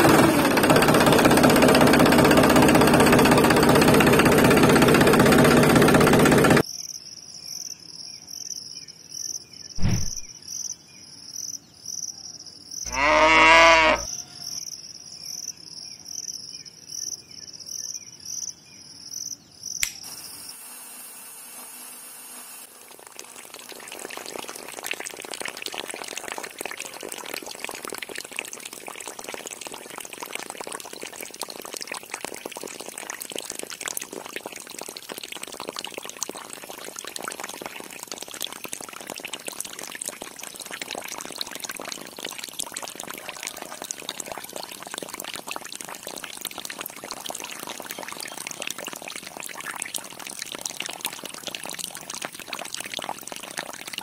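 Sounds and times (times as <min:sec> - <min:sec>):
water pouring from hose: 0:00.0 - 0:06.6, 0:22.5 - 0:54.0
low thud: 0:09.8 - 0:10.3
cow mooing: 0:12.9 - 0:14.1.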